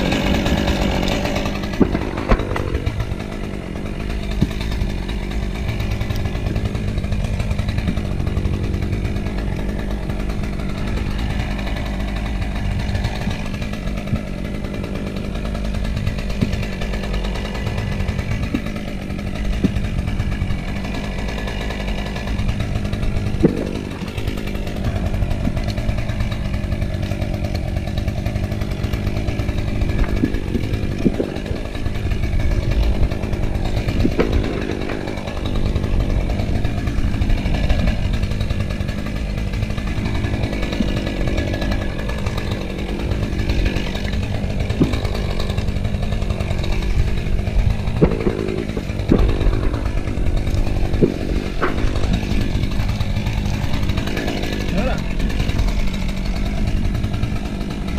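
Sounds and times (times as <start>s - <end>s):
chainsaw running at high revs: 0.0s - 57.9s
sharp knocks: 0.1s - 3.4s, 4.3s - 4.8s, 18.4s - 38.4s, 40.0s - 54.7s.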